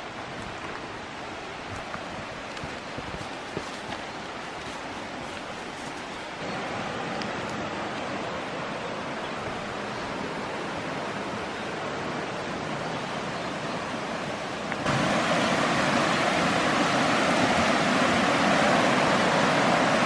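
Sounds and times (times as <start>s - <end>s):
creek water rushing over rocks: 0.0s - 20.0s.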